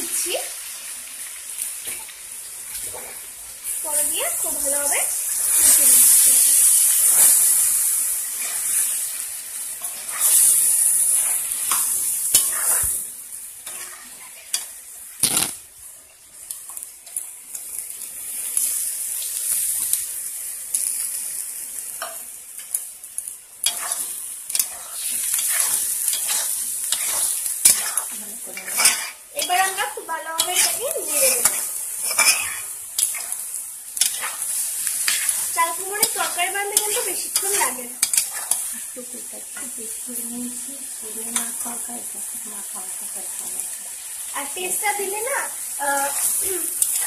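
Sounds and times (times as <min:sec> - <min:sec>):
food sizzling in a wok: 0:00.0 - 0:47.0
metal spatula scraping pan: 0:09.8 - 0:12.9, 0:23.6 - 0:33.4, 0:34.0 - 0:38.7.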